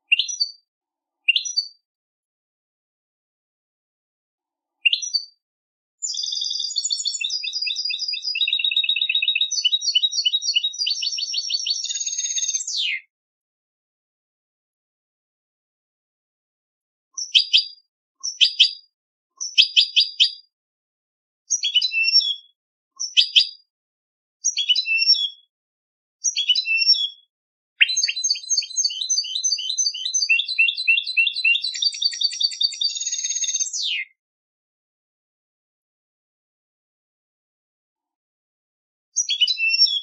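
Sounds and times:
goldfinch singing: 0:04.8 - 0:05.3, 0:06.0 - 0:13.0, 0:17.2 - 0:18.8, 0:24.5 - 0:25.4, 0:26.3 - 0:27.2, 0:27.8 - 0:34.0, 0:39.2 - 0:40.0.

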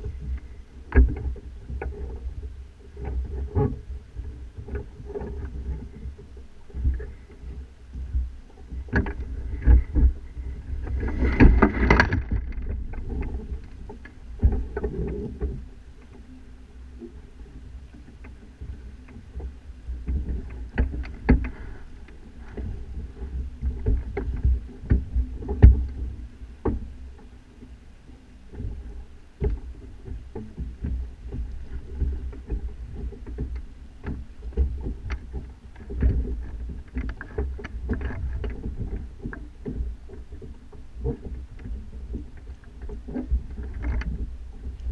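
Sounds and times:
mast and rig knocking and rattling: 0:00.0 - 0:16.2, 0:29.4 - 0:44.9
low rumble: 0:00.0 - 0:36.9.

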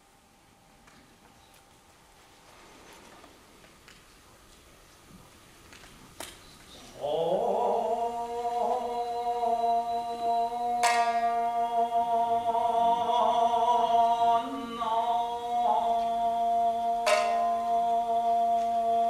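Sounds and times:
person singing wavering note: 0:07.0 - 0:19.0
shamisen pluck: 0:10.8 - 0:11.5.

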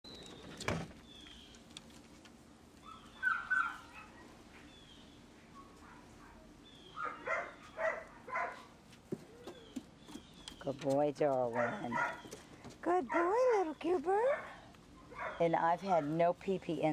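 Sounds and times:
birds chirping: 0:00.0 - 0:01.8, 0:02.8 - 0:16.2
dog barking: 0:07.0 - 0:08.7, 0:11.5 - 0:12.3, 0:14.3 - 0:15.4.

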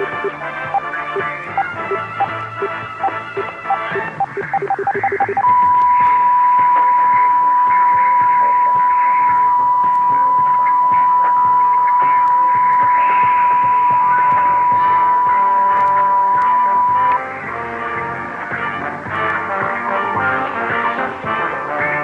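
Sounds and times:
steady electronic signal tone: 0:00.0 - 0:17.5
faint music: 0:00.0 - 0:22.0
radio static hiss: 0:00.0 - 0:22.0.

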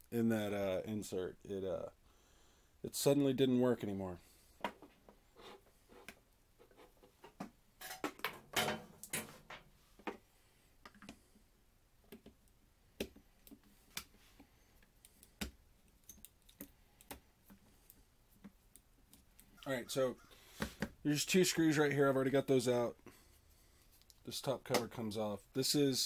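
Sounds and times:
small clicks and taps: 0:12.0 - 0:14.1.

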